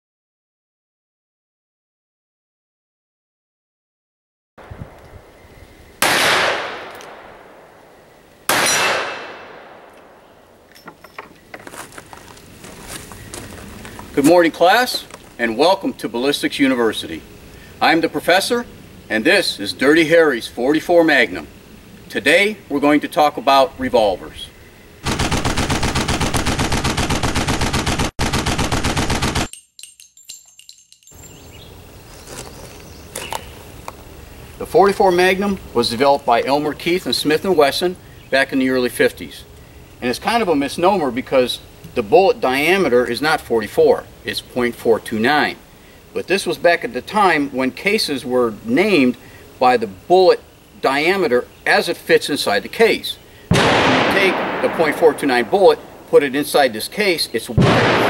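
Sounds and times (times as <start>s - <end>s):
revolver shots with echo: 6.0s - 7.8s, 8.5s - 10.2s, 53.5s - 56.1s, 57.6s - 58.0s
rapid automatic gunfire: 25.0s - 29.5s.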